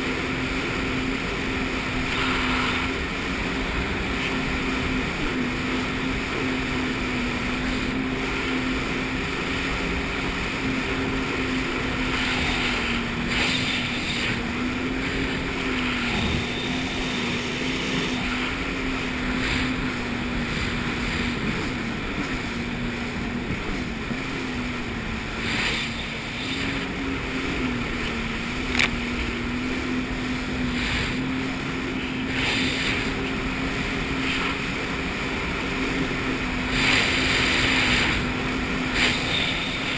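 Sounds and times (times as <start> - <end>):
jet ski engine hum: 0.0 - 39.9
rush of water and wind: 0.0 - 39.9
water splashing: 0.0 - 39.9.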